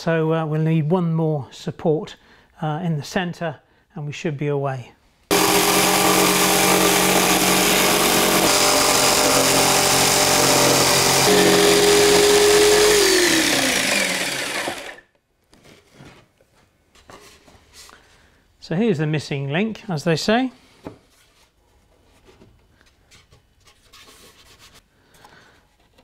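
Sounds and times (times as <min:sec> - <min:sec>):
jigsaw cutting plywood: 0:05.3 - 0:15.0
motor winding down: 0:05.3 - 0:15.0.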